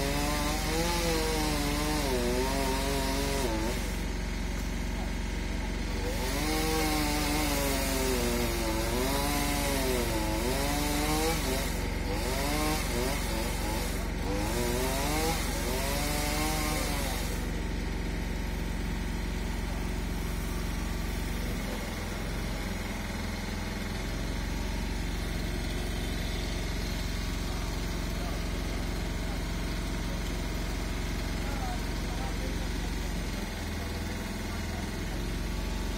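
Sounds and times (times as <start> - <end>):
engine idling: 0.0 - 6.4, 7.0 - 35.9
chainsaw revving: 0.0 - 35.9.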